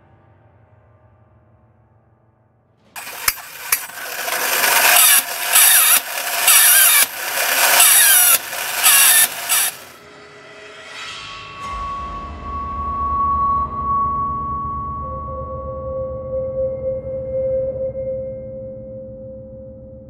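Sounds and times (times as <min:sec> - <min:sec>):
toy clicks: 0:03.0 - 0:09.9
toy cymbals clashing: 0:03.0 - 0:10.0.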